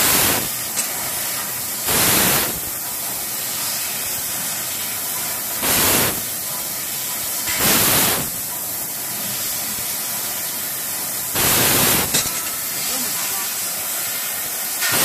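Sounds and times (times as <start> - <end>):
short loud hissing blasts: 0.0 - 4.7, 5.5 - 6.3, 7.4 - 8.4, 10.2 - 15.0
laser cutter gas hissing: 0.0 - 15.0.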